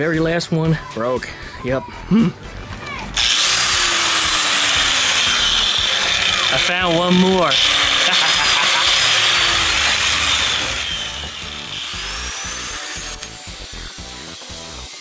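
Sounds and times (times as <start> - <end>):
angle grinder whine: 3.2 - 15.0.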